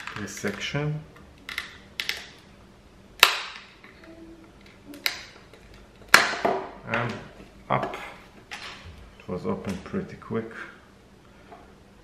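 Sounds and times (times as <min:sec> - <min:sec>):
plastic clips snapping: 0:00.0 - 0:02.4, 0:03.2 - 0:06.4.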